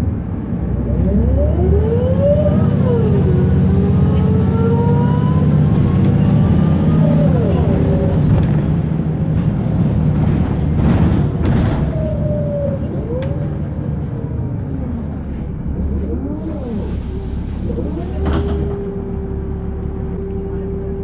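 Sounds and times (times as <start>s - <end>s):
bus diesel engine running: 0.0s - 21.0s
air hiss: 16.4s - 18.4s.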